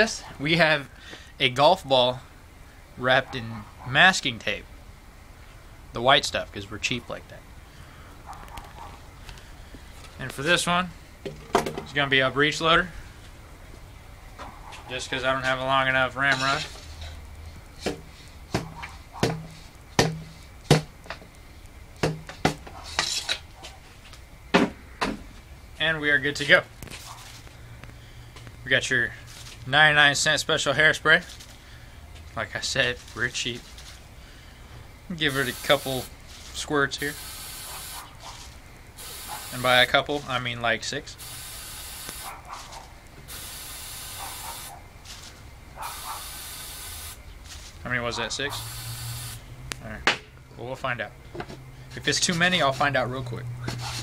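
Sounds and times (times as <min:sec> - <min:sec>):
scraping rustle: 0:14.3 - 0:20.6, 0:22.6 - 0:24.2, 0:26.8 - 0:27.6, 0:29.2 - 0:29.8, 0:32.2 - 0:34.1, 0:36.2 - 0:36.7, 0:38.0 - 0:38.7, 0:42.2 - 0:43.0, 0:44.7 - 0:45.9, 0:47.3 - 0:47.9, 0:53.6 - 0:54.0
hollow knocks on plastic pipe: 0:18.6 - 0:20.9, 0:22.0 - 0:22.6
aerosol can hissing squirts: 0:35.3 - 0:36.1, 0:37.1 - 0:38.1, 0:39.0 - 0:39.9, 0:41.2 - 0:42.3, 0:43.3 - 0:44.7, 0:45.8 - 0:47.2, 0:48.5 - 0:49.4.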